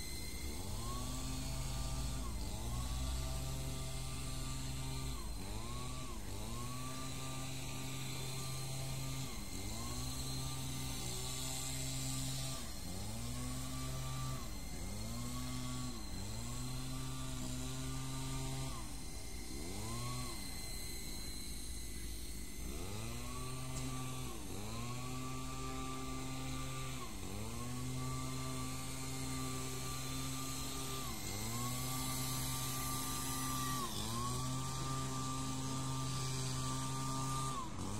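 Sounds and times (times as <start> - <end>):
rc helicopter rotors whining: 0.0 - 37.9.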